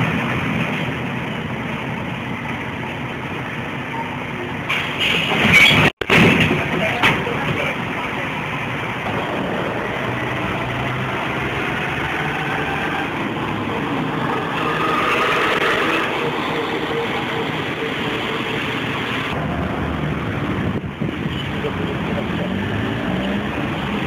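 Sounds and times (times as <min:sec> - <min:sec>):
street traffic noise: 0:00.0 - 0:24.0
bus diesel engine passing: 0:07.8 - 0:24.0.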